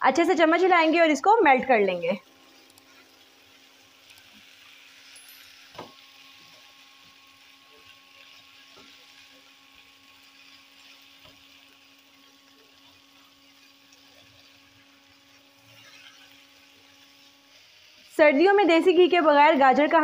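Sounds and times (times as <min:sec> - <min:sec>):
faint sizzling in a pan: 0:00.0 - 0:20.0
spatula stirring and scraping: 0:02.4 - 0:05.0, 0:06.4 - 0:18.1.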